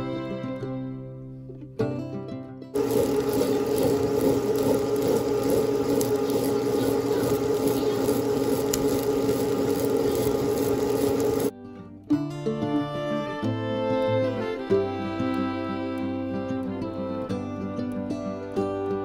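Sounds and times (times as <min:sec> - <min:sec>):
wet grinder running: 0:02.8 - 0:11.5.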